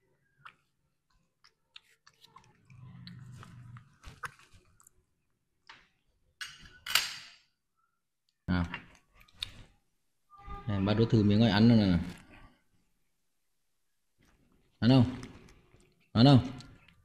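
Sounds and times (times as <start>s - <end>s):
wet chewing and biting: 0.2s - 5.2s, 8.7s - 9.8s.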